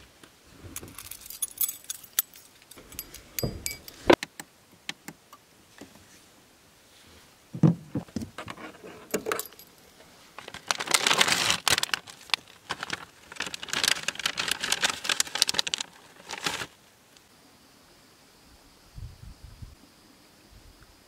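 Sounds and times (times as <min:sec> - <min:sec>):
small clicks and clinks: 0:00.8 - 0:04.2, 0:09.0 - 0:09.8
rustling and crinkling of bedding: 0:08.0 - 0:16.9.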